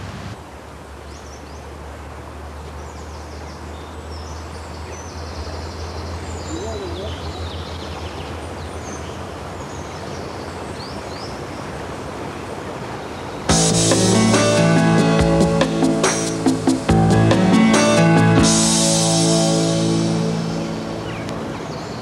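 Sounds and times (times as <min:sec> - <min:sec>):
birds chirping: 0:02.6 - 0:11.8, 0:12.9 - 0:22.0
steady hiss: 0:13.4 - 0:22.0
low hum: 0:13.5 - 0:22.0
music: 0:13.5 - 0:22.0.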